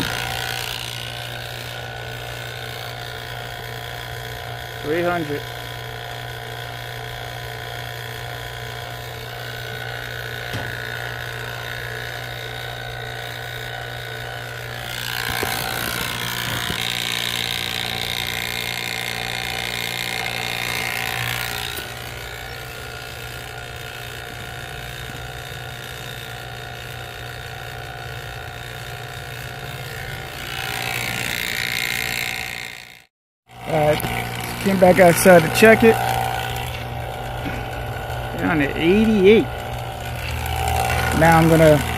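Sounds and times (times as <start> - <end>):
vacuum pump humming: 0.0 - 41.9.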